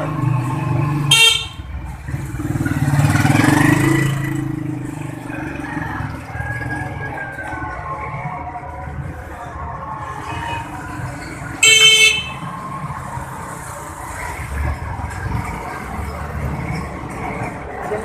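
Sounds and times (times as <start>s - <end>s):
low rumble of street noise: 0.0s - 18.0s
vehicle horn toot: 1.1s - 1.7s, 11.6s - 12.5s.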